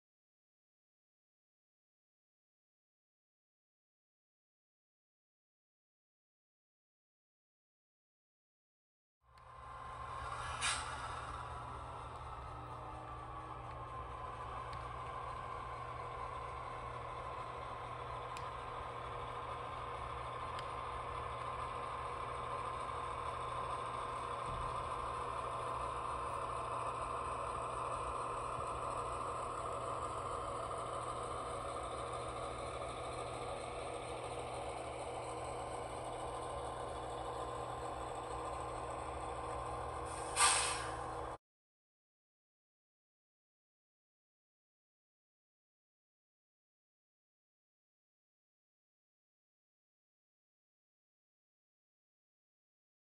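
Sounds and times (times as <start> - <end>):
diesel locomotive engine running: 9.3 - 41.4
short loud hiss: 10.2 - 11.4, 40.1 - 41.0.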